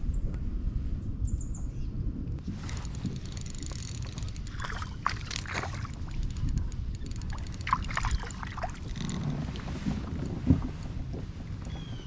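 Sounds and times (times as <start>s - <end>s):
wind rumble on microphone: 0.0s - 12.0s
water splashing: 2.6s - 11.0s.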